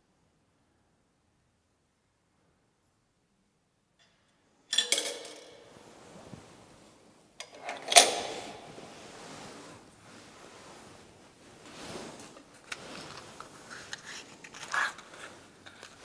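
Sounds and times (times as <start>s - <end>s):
coins clinking into metal box: 4.7s - 5.7s
soft rustling: 5.6s - 7.4s, 8.4s - 16.0s.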